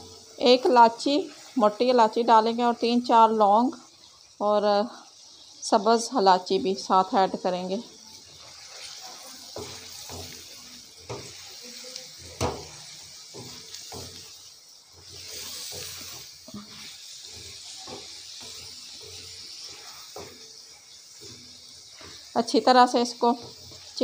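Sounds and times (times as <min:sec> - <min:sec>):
chicken sizzling in oil: 0:00.0 - 0:24.0
wooden spatula scraping pan: 0:08.3 - 0:24.0
sharp knock on pan: 0:12.4 - 0:12.8.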